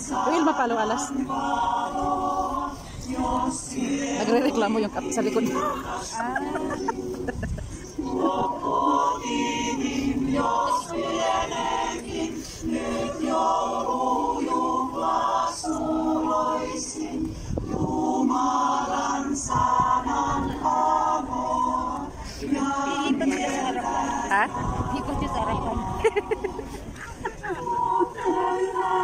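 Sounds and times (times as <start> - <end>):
choir singing: 0.0 - 29.0.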